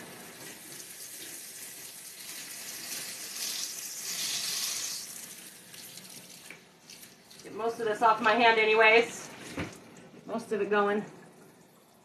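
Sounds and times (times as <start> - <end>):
food sizzling in hot oil: 0.0 - 5.6.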